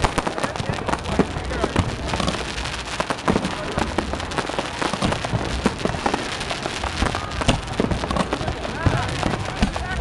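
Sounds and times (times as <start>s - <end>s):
fireworks pops and crackles: 0.0s - 10.0s.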